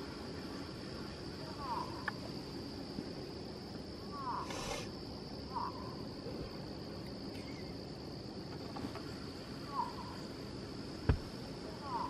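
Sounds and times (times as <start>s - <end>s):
cricket chirp: 0.0s - 12.0s
crickets trilling: 0.0s - 12.0s.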